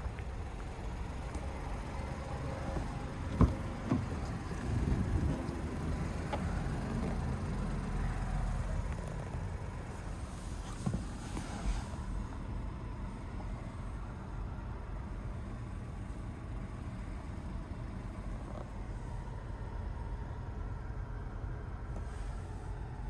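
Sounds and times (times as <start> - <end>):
low outdoor rumble: 0.0 - 23.0.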